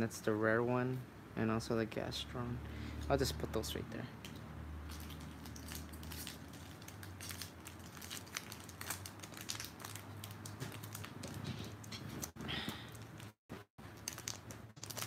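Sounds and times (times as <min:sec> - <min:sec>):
foil wrapper crinkling: 0:04.9 - 0:15.0.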